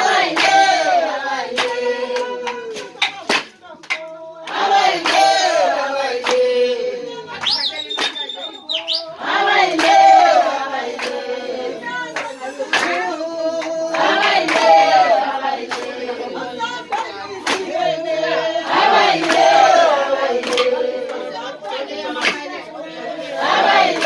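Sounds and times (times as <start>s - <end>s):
voices singing: 0.0s - 24.0s
sharp hand claps: 0.2s - 6.6s, 7.4s - 11.2s, 12.0s - 16.0s, 16.9s - 17.8s, 19.2s - 21.2s, 22.1s - 22.6s.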